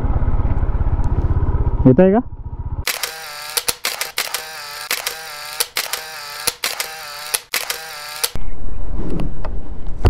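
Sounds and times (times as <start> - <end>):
camera shutter clicks: 2.9 - 8.4
pitched whine: 2.9 - 8.4.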